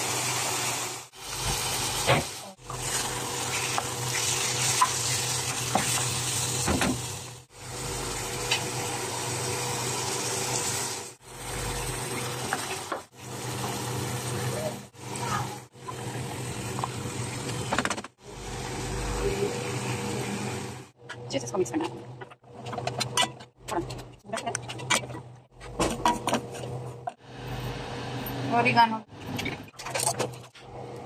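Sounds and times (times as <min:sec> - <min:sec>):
food sizzling in a pan: 0:00.0 - 0:11.2.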